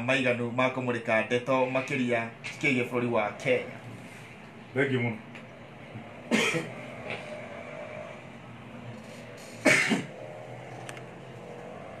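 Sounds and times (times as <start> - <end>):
person coughing: 6.3 - 6.8, 9.6 - 10.1.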